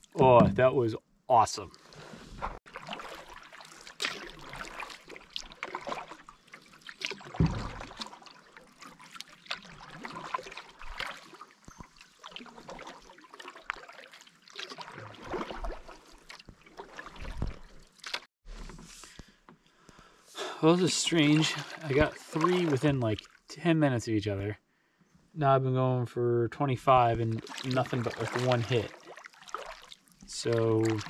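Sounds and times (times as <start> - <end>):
water splashing and trickling: 0.0 - 18.3, 20.5 - 23.5, 27.0 - 31.0
low thuds: 0.2 - 0.9.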